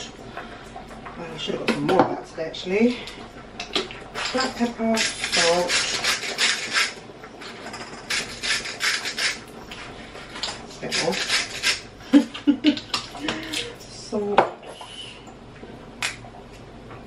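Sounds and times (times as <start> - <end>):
salt and pepper grinders grinding: 4.3 - 9.5, 10.8 - 11.9.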